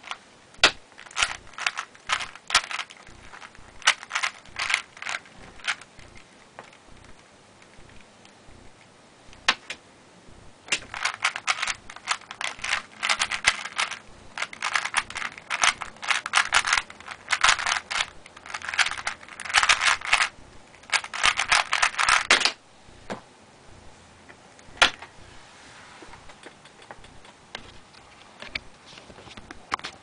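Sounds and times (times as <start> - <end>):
puzzle cube clicking: 0.1 - 8.1, 10.7 - 22.6.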